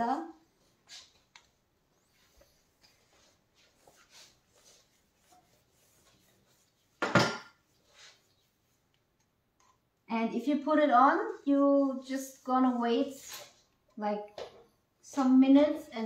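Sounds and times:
brush strokes on a wall: 0:00.6 - 0:01.3, 0:01.9 - 0:07.0, 0:07.6 - 0:09.0.

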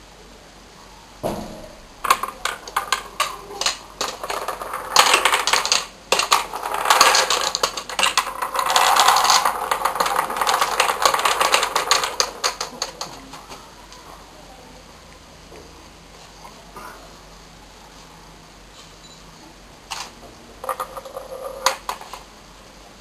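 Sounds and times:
wooden balls rolling and clattering: 0:01.8 - 0:13.7, 0:19.9 - 0:22.4.

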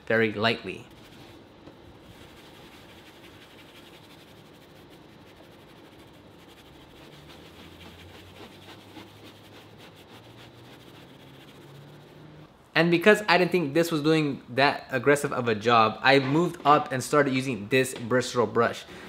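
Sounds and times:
towel wiping: 0:00.9 - 0:12.3
brush scrubbing: 0:00.9 - 0:12.5.

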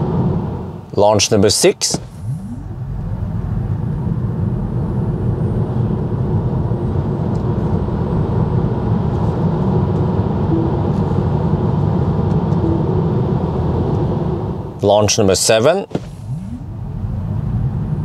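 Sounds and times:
tyre and road noise: 0:01.6 - 0:04.8, 0:15.7 - 0:18.0
electric motor whine: 0:16.0 - 0:16.9.

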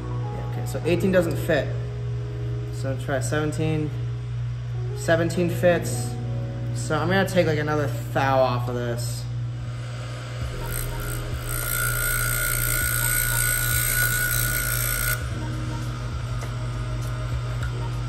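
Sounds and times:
grinding wheel hissing: 0:09.6 - 0:16.1.

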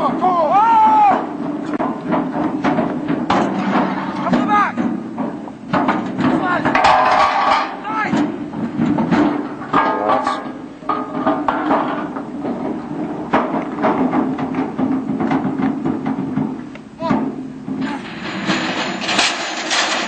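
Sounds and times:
person shouting: 0:00.0 - 0:01.3
metal clanks and knocks: 0:00.0 - 0:20.0.

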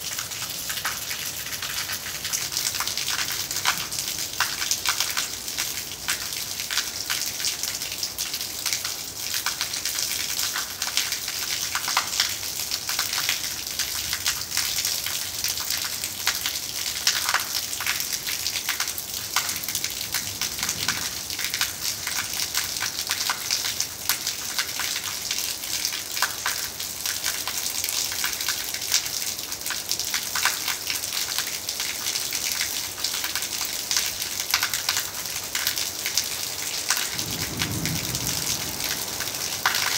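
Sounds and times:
water stream pouring on tiles: 0:00.0 - 0:39.9.

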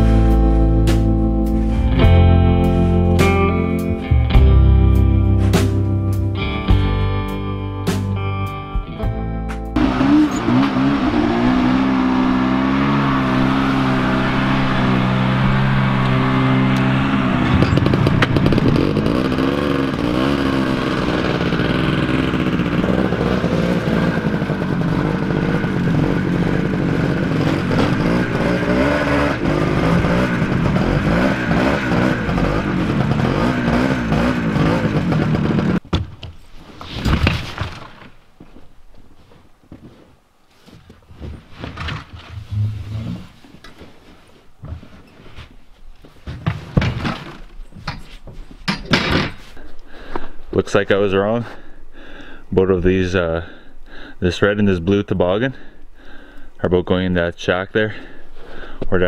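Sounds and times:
snowmobile engine idling and revving: 0:09.8 - 0:35.8.

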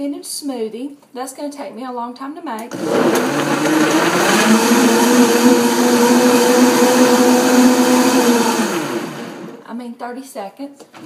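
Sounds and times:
blender running: 0:02.7 - 0:09.6.

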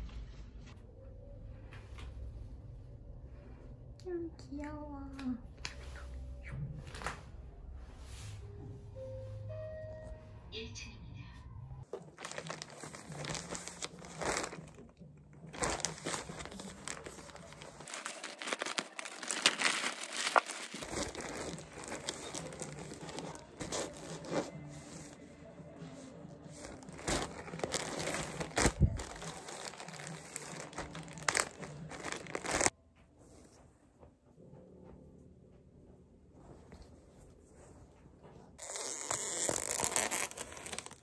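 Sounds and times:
packaging crinkling and rustling: 0:11.9 - 0:25.1, 0:26.6 - 0:32.7, 0:38.6 - 0:41.0.

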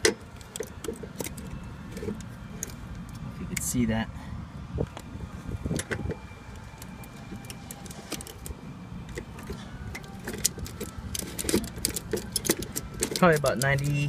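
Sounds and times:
metal parts clicking and rattling: 0:00.0 - 0:03.7, 0:06.6 - 0:14.0.

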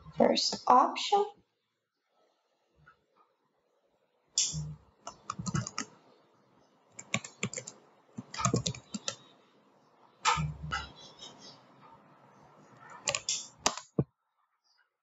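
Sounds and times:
typing on keyboard: 0:05.1 - 0:05.9, 0:07.0 - 0:09.2, 0:13.0 - 0:14.0.

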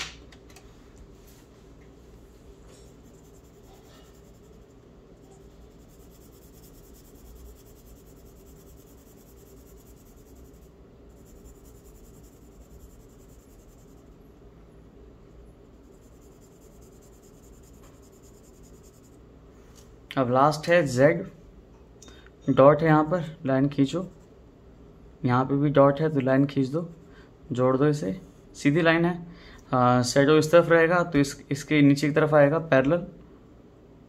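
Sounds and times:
steady low hum: 0:00.0 - 0:34.0
charcoal pencil scratching on paper: 0:02.7 - 0:14.2, 0:15.7 - 0:19.2.

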